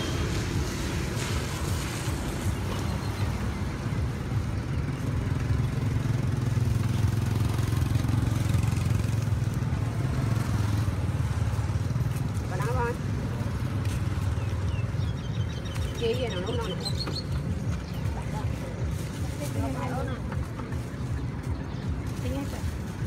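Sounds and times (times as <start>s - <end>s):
street traffic engine rumble: 0.0s - 23.0s.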